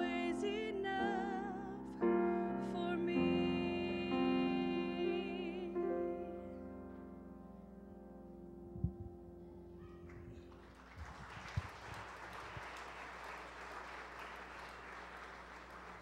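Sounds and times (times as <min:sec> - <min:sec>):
grand piano chord ringing: 0:00.0 - 0:10.6
audience applauding: 0:10.1 - 0:16.0.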